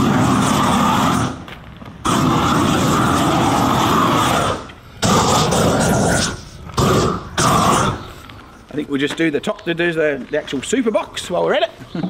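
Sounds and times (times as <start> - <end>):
gas torch flame blasting: 0.0 - 8.1.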